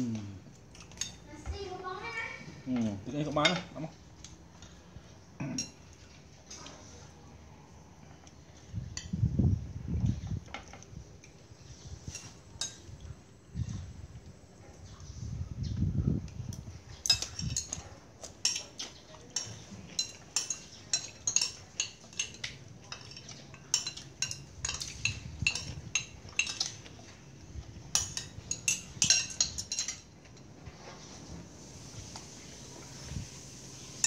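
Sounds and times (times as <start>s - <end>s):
metal spoon clinking on ceramic plate: 17.0s - 17.8s, 18.4s - 26.8s, 27.9s - 30.1s.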